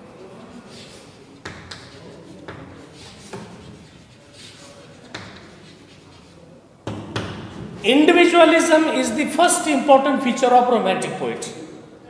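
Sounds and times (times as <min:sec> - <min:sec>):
chalk scraping on blackboard: 0:00.0 - 0:06.6
chalk tapping on blackboard: 0:00.3 - 0:07.6.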